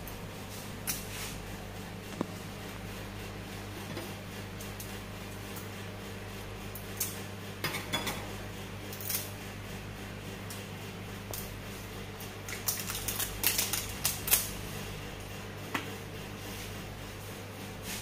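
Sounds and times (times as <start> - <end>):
steady low hum: 0.0 - 18.0
utensils clicking on steel plate: 12.5 - 14.5.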